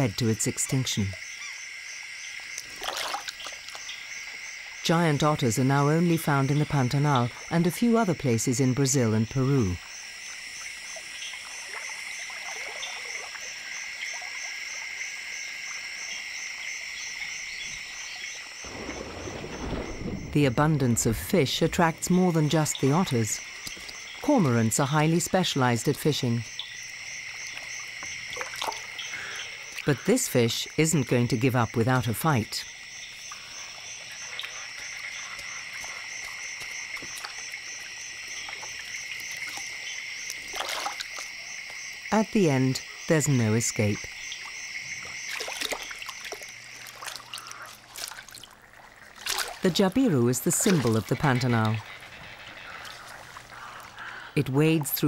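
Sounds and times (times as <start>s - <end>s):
frogs croaking: 0.0s - 55.0s
insects trilling: 0.0s - 55.0s
faint ticks: 23.6s - 24.0s.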